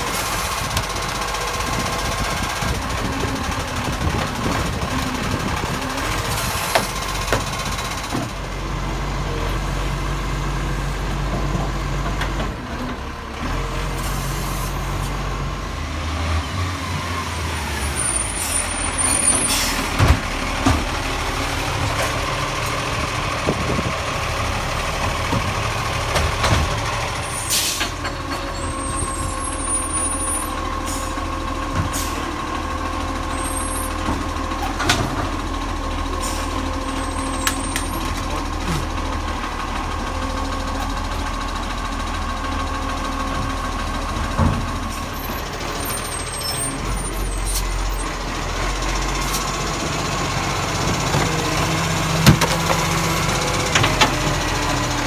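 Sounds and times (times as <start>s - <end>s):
diesel engine droning: 0.0s - 55.0s
air brake hisses: 27.3s - 27.9s.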